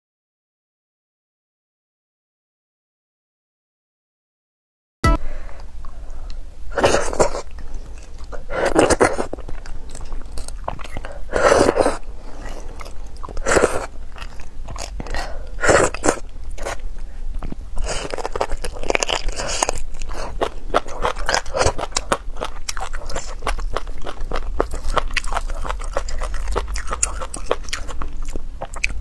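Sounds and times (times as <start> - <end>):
wet sucking and chewing: 6.8 - 29.0.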